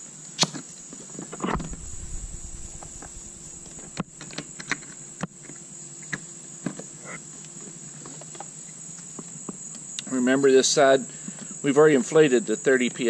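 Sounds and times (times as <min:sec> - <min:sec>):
high-pitched insect drone: 0:00.7 - 0:13.0.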